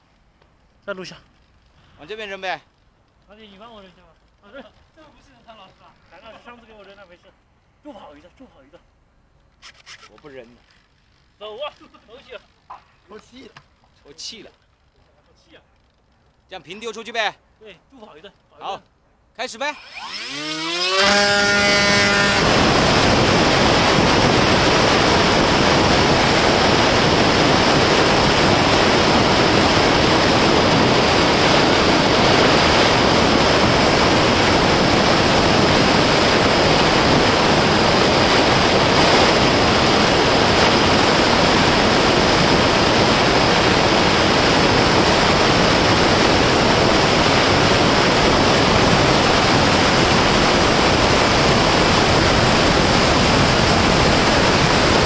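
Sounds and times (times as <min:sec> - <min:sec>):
thin high whine: 0:19.4 - 0:55.0
wind and propeller noise: 0:19.4 - 0:55.0.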